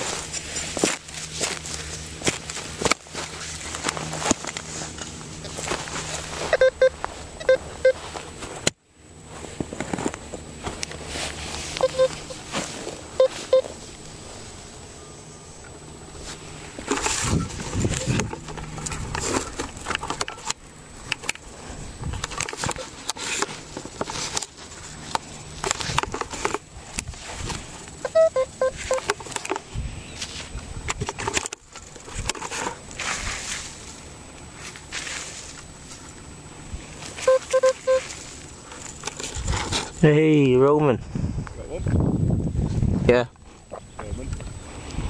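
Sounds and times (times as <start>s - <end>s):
spade cutting turf: 0.0s - 8.7s, 9.3s - 14.6s, 16.1s - 36.1s
metal detector short beeps: 6.4s - 8.1s, 11.8s - 12.5s, 13.1s - 13.8s, 28.0s - 29.2s, 37.1s - 38.2s.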